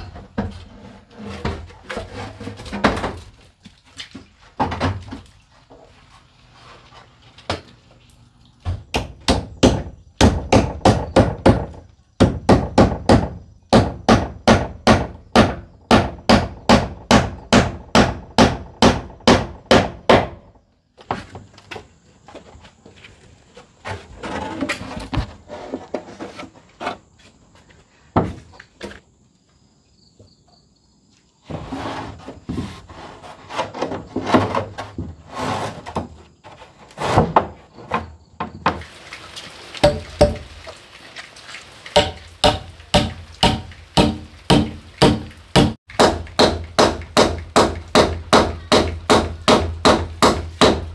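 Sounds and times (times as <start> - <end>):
hammer striking wood: 8.9 - 20.4, 39.8 - 40.4, 42.0 - 50.9.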